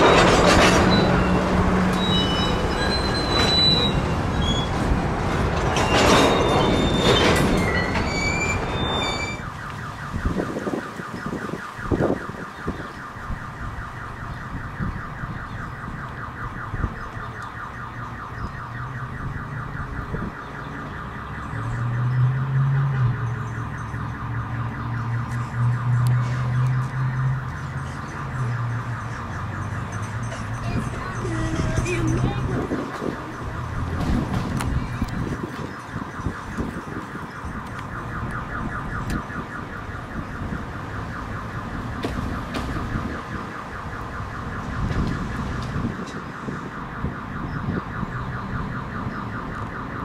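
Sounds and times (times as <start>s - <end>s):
crossing bell ringing: 0.0s - 4.7s, 27.3s - 34.0s
train wheels squealing on rails: 0.0s - 4.9s, 5.6s - 9.4s.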